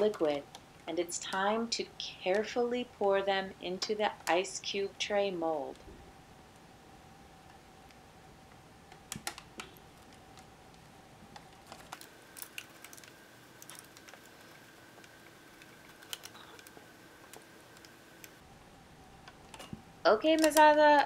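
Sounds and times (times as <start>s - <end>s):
faint steady hum: 0.0s - 21.0s
parchment paper crinkling: 9.7s - 18.4s.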